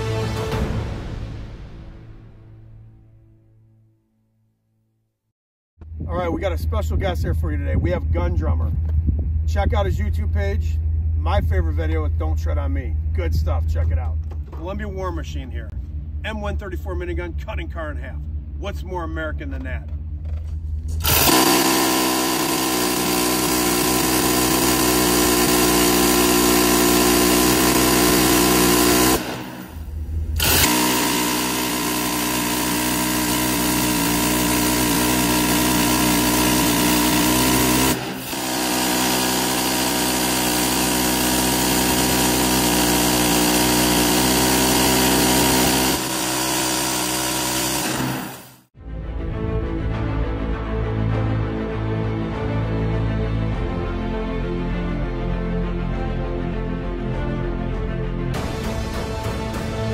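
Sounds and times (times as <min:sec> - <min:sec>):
rotary machine gun firing: 0:21.0 - 0:48.6.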